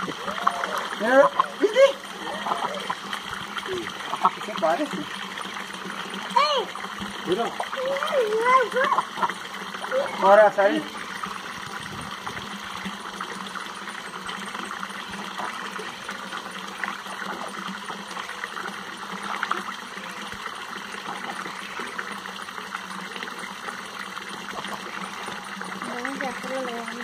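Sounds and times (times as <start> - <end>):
ducks splashing: 0.0 - 11.5, 24.4 - 27.0
tap water pouring into trough: 0.0 - 27.0.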